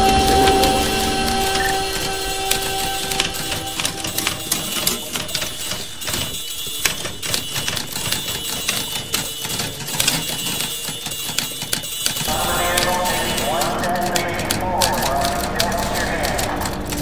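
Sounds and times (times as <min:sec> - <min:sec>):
music with held chord: 0:00.0 - 0:07.2, 0:12.3 - 0:17.0
typewriter keys clacking: 0:00.0 - 0:17.0.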